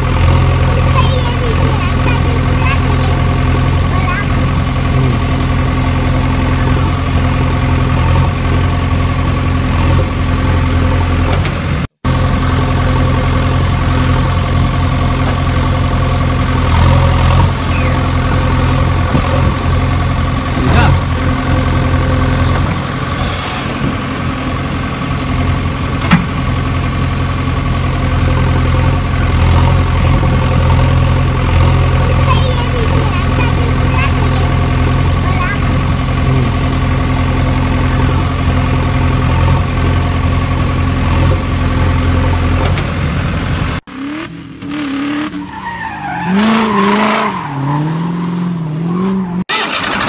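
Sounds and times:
engine idling: 0.0 - 43.9, 49.5 - 50.0.

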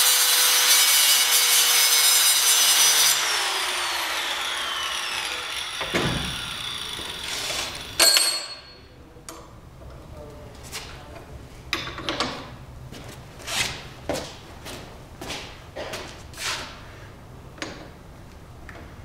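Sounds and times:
angle grinder cutting metal: 0.0 - 8.2.

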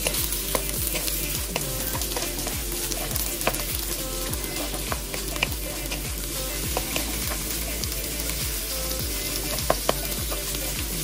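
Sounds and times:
meat and onions sizzling in a wok: 0.0 - 11.0.

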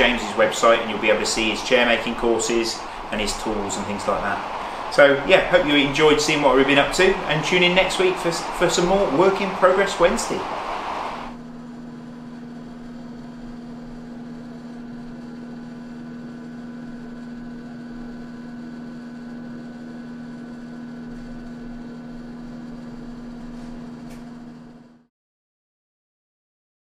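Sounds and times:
faint hiss: 0.0 - 11.4
low electrical hum: 0.0 - 25.1.

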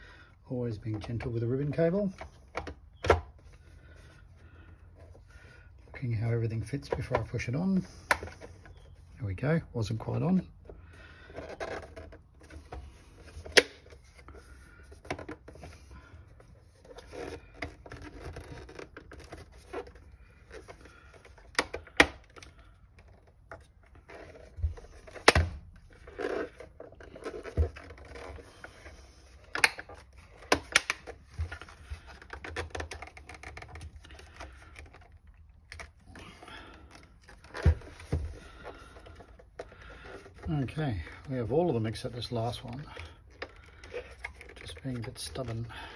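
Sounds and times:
plastic case rubbing: 0.7 - 45.9
plastic clips snapping: 29.5 - 31.2.

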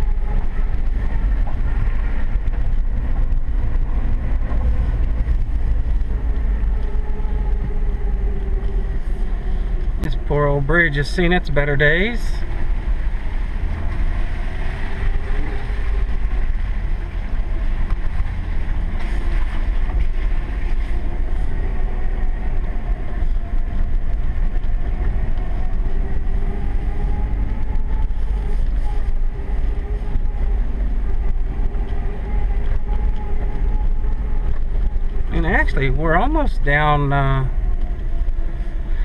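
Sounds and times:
truck engine rumbling: 0.0 - 39.0.

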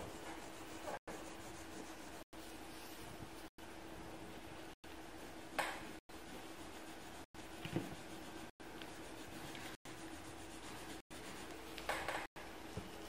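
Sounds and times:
pencil scratching on paper: 0.0 - 2.4, 6.1 - 11.6.

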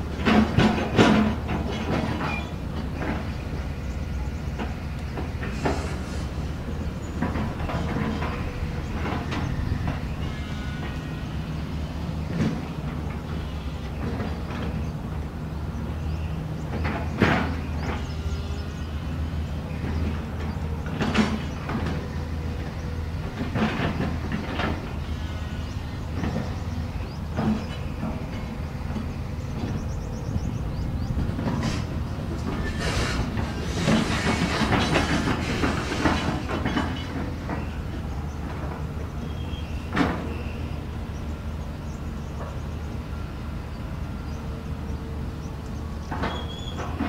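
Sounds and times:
diesel excavator engine running: 0.0 - 47.0
knocks and clanks: 0.1 - 3.9, 4.6 - 11.0, 16.7 - 18.6, 19.8 - 40.6.

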